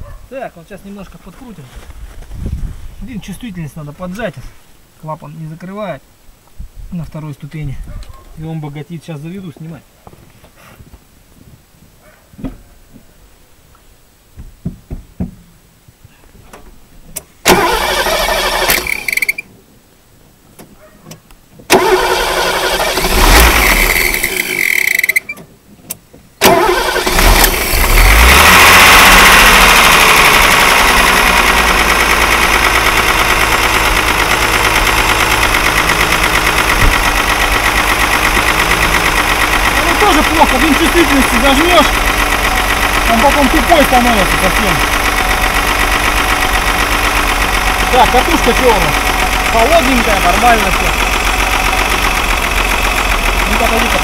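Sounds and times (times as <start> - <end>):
engine starter cranking: 17.2 - 19.5, 21.7 - 25.4, 26.4 - 54.0
car engine revving and idling: 21.7 - 24.9, 26.4 - 54.0.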